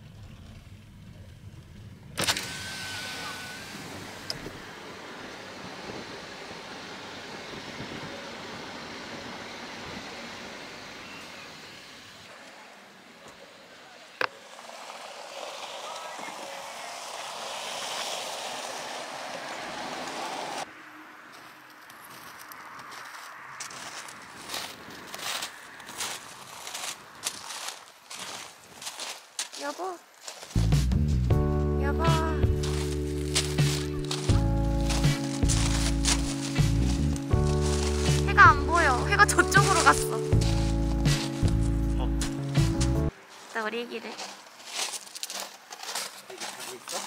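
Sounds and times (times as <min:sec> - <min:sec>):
car rumbling: 0:00.0 - 0:21.3, 0:30.6 - 0:43.2
wind hissing: 0:02.4 - 0:20.7, 0:32.2 - 0:43.2.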